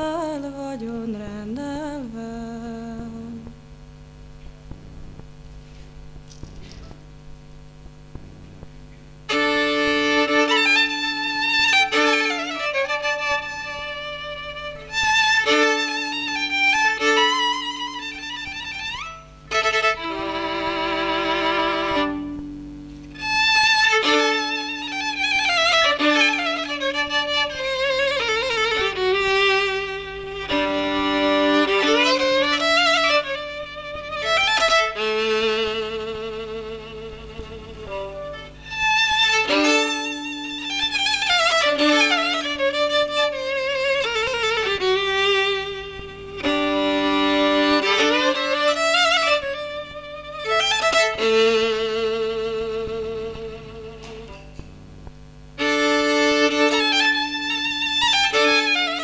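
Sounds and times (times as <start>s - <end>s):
low steady hum: 0.0s - 9.4s, 13.2s - 15.4s, 18.1s - 23.7s, 27.0s - 39.6s, 42.8s - 47.8s, 49.8s - 55.7s
solo violin melody: 9.4s - 11.0s.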